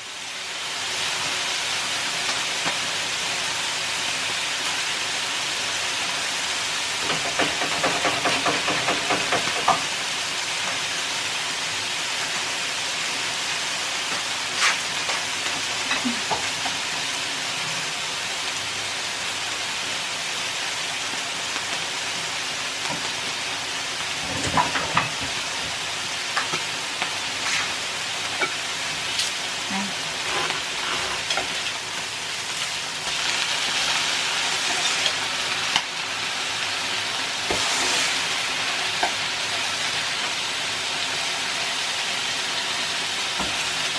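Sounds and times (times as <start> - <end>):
steak sizzling on grill: 0.0 - 43.9.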